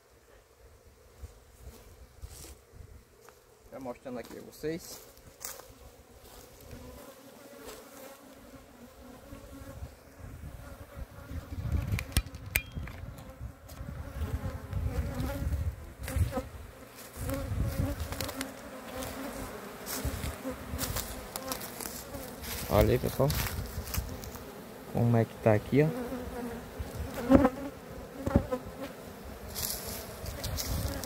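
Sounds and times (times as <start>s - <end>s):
bees buzzing: 0.0s - 12.4s, 13.0s - 31.0s.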